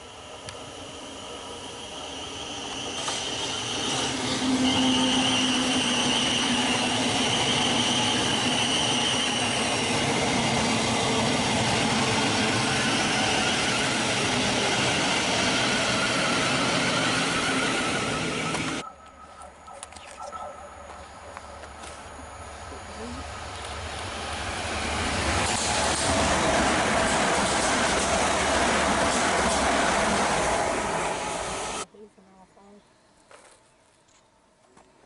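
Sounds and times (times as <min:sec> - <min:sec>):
train wheels rushing on rail: 0:00.0 - 0:18.8, 0:21.6 - 0:31.9
high electric whine: 0:00.0 - 0:25.5.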